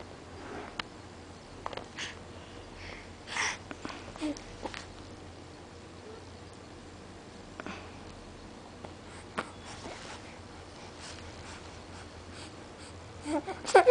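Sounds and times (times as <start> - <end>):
steady low hum: 0.0 - 13.9
baby sniffing breaths: 9.0 - 13.0.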